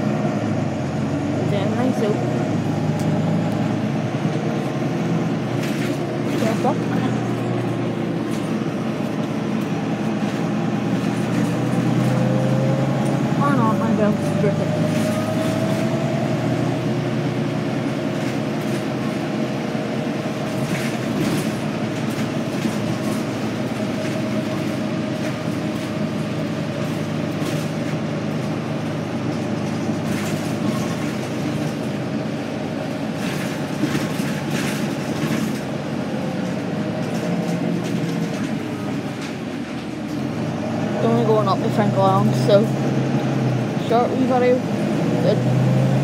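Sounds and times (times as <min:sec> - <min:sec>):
bus engine and road drone: 0:00.0 - 0:46.0
bus fittings rattling: 0:03.0 - 0:12.2, 0:17.5 - 0:40.2.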